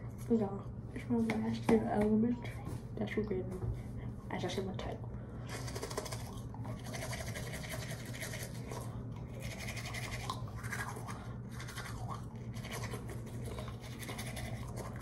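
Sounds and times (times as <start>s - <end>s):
toothbrush scrubbing teeth: 5.5s - 15.0s.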